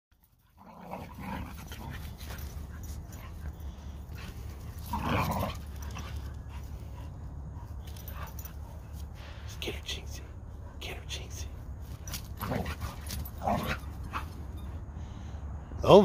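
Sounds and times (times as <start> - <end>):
dogs growling in play: 0.4 - 9.0, 12.1 - 14.6.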